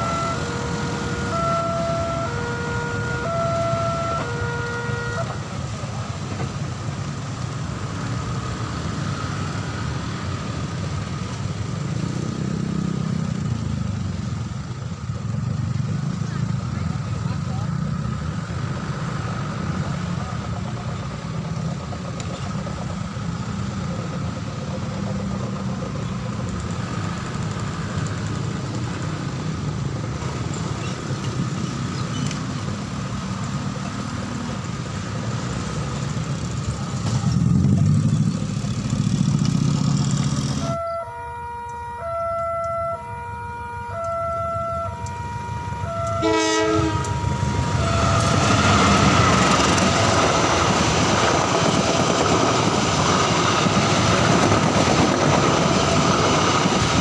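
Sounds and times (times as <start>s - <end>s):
horn sounding notes: 0.0s - 5.5s, 40.6s - 49.2s
road traffic engines rumbling: 0.0s - 57.0s
train running noise: 0.0s - 57.0s.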